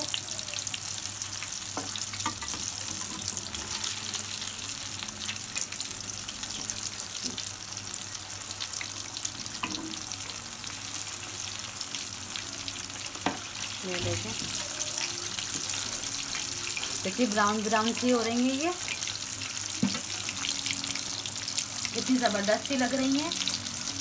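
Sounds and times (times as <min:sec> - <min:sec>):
fish deep-frying in oil: 0:00.0 - 0:24.0.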